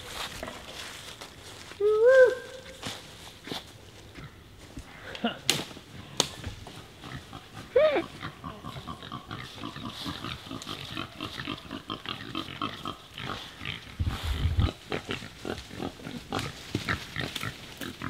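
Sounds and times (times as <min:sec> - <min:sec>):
pigs grunting: 0:07.0 - 0:18.0.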